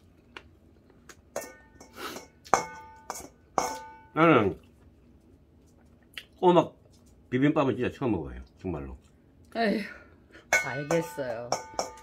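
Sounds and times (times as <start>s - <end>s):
metal bowl ringing: 1.4s - 4.2s, 10.5s - 12.0s.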